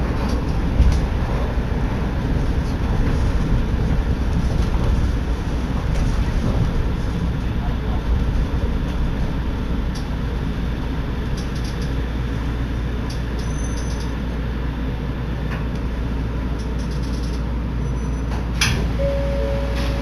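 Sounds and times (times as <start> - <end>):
monorail car running rumble: 0.0 - 20.0
steady tone: 19.0 - 20.0.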